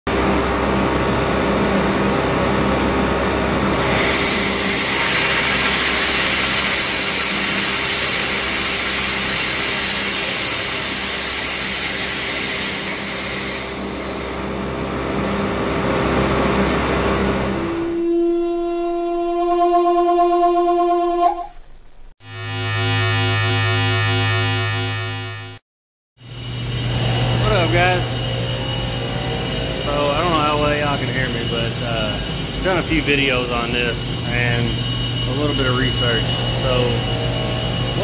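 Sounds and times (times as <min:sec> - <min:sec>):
machinery hum: 0:00.1 - 0:19.6, 0:26.2 - 0:38.0
steam hissing from valve: 0:03.8 - 0:14.5.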